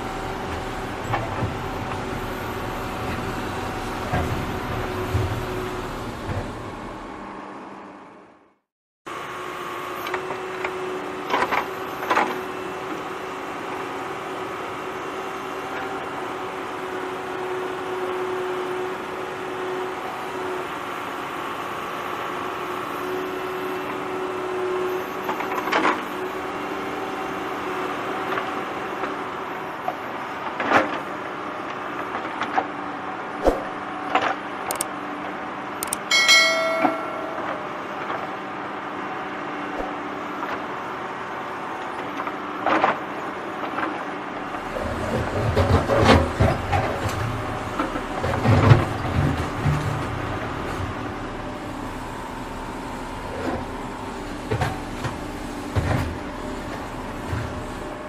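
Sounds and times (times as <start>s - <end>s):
diesel engine running: 0.0s - 7.6s, 44.4s - 58.0s.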